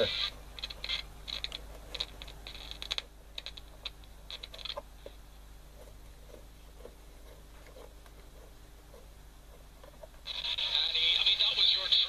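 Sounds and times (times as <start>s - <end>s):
radio clicking and crackling: 0.0s - 5.2s, 9.5s - 12.0s
faint low hum: 0.0s - 12.0s.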